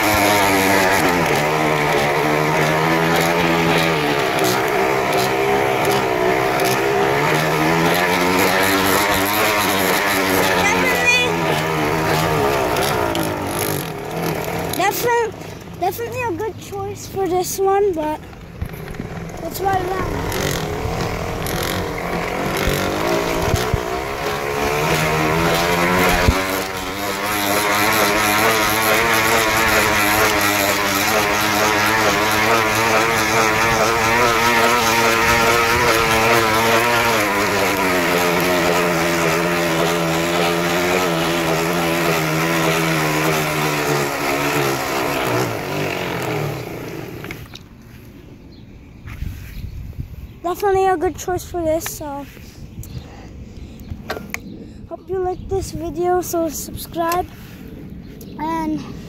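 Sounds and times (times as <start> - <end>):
bicycle spokes buzzing on noisemaker: 0.0 - 16.5, 17.1 - 47.7.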